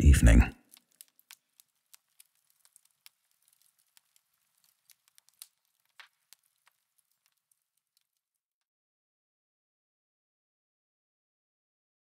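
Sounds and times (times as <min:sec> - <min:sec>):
log fire crackling: 0:00.3 - 0:08.4.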